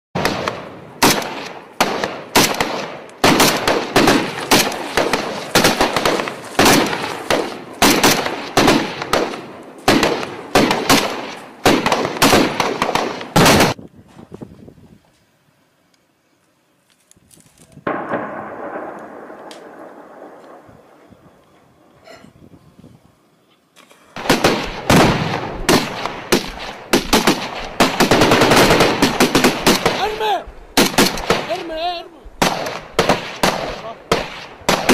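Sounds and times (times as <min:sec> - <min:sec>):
automatic gunfire bursts: 0:00.2 - 0:13.8, 0:24.2 - 0:30.2, 0:30.8 - 0:31.6, 0:32.4 - 0:34.9
rifle shots echoing: 0:00.2 - 0:13.8, 0:17.8 - 0:21.1, 0:24.2 - 0:34.9.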